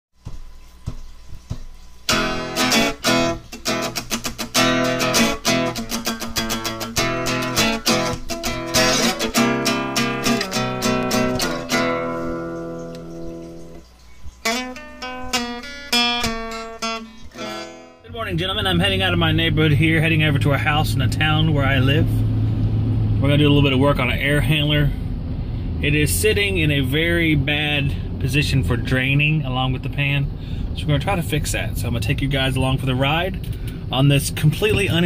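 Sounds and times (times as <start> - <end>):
acoustic guitar music: 0.2 - 24.9, 32.8 - 35.0.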